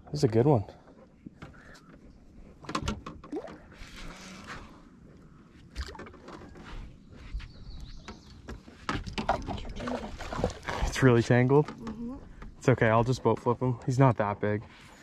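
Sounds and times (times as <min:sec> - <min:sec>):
fishing rods knocking and rattling: 0:02.6 - 0:04.1, 0:05.7 - 0:06.7, 0:08.1 - 0:12.7.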